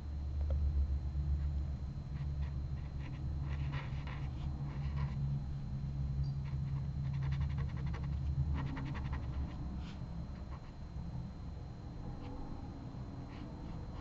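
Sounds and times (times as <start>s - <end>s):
steady low hum: 0.0s - 14.0s
pen scratching on paper: 2.2s - 5.2s, 6.4s - 10.7s.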